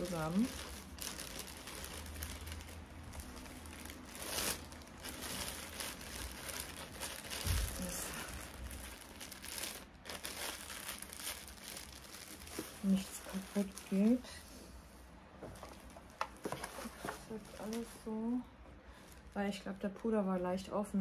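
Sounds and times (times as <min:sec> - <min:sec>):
plastic bag crinkling and rustling: 0:00.0 - 0:14.6, 0:15.4 - 0:19.8.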